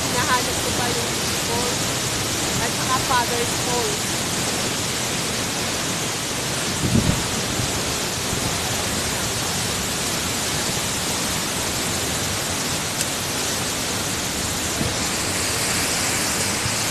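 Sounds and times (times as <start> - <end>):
waterfall rushing: 0.0 - 16.9.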